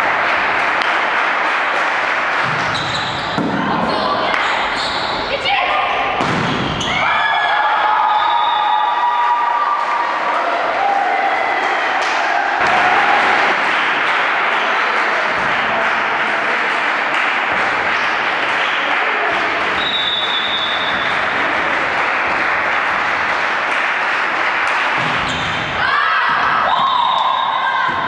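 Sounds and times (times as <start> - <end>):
spectators clapping: 0.0 - 2.7, 9.0 - 26.0.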